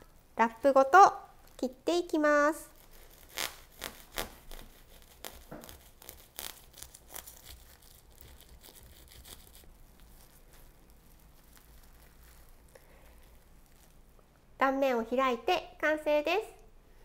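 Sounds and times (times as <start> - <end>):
plastic wrap crinkling: 2.6 - 14.2
knife sawing through bread: 2.9 - 9.7.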